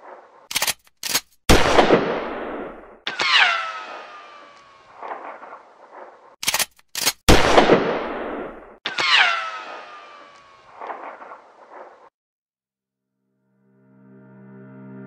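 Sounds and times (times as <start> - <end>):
gunshots burst: 1.5 - 6.2, 7.3 - 11.9.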